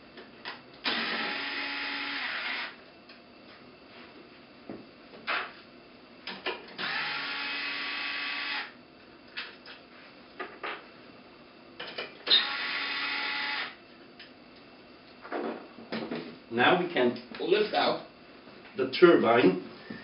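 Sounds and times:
power drill motor running: 0.8 - 2.8, 6.8 - 8.8, 12.3 - 13.8.

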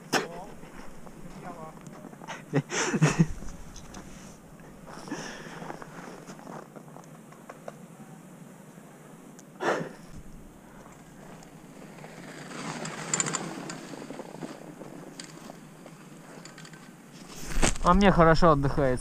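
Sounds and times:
tyres crunching over snow: 3.0 - 7.0, 10.7 - 18.2
bike clicking and rattling: 10.1 - 17.9.

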